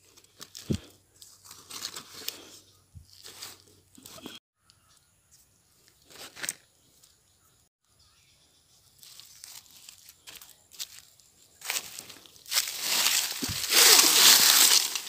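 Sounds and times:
paper wrapping crinkling: 9.0 - 15.0.

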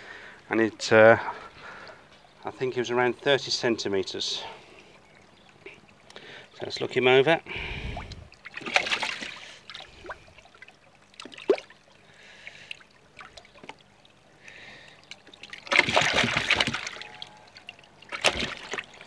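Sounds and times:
water splashing in tub: 8.0 - 19.0.

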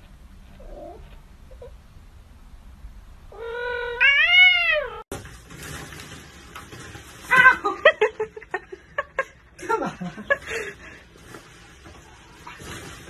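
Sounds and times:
cat meowing: 3.3 - 5.0.

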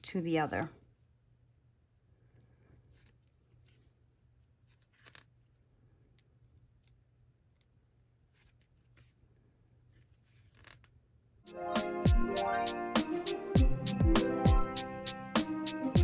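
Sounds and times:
needle and thread through fabric: 2.7 - 5.7, 6.4 - 11.0.

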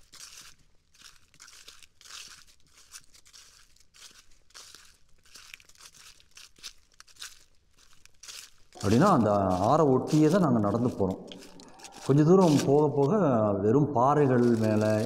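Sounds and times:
footsteps crunching on forest trail: 0.0 - 15.0.

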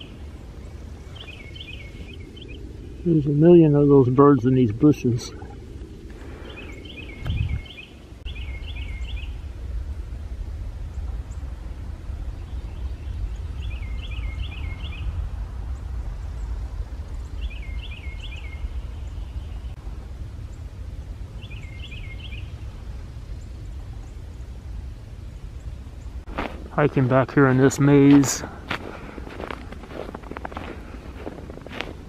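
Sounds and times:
small songbird singing: 0.0 - 5.1, 6.4 - 9.4, 12.4 - 15.2, 17.2 - 19.8, 21.4 - 24.6
steady low rumble: 0.0 - 32.0.

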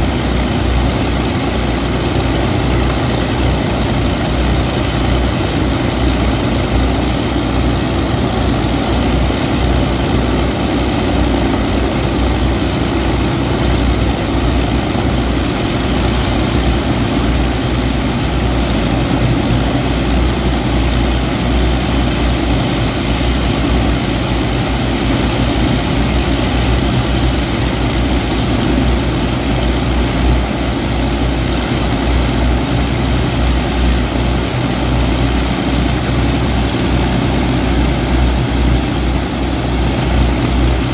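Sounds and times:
aircraft piston engines idling: 0.0 - 40.9
propeller noise: 0.0 - 40.9.

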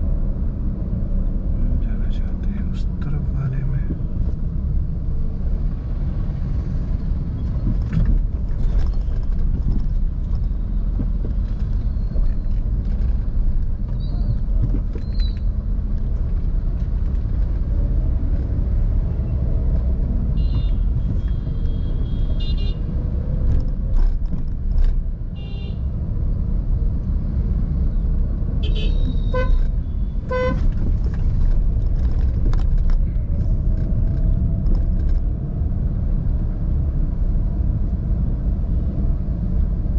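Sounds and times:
road and engine rumble: 0.0 - 39.9
vehicle horns tooting: 28.6 - 29.7, 30.3 - 30.6.

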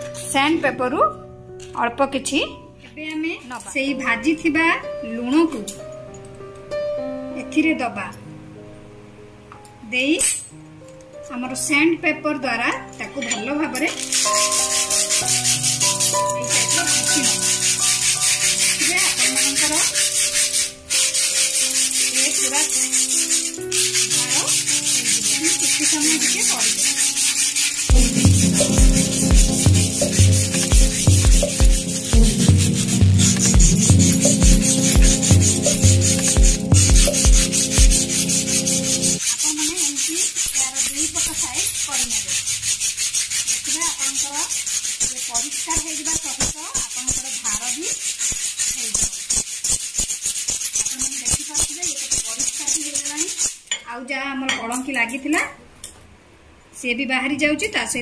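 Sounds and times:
background music: 0.0 - 39.4
sandpaper rasping on steel blade: 13.8 - 53.6
background music with a beat: 27.9 - 39.2.

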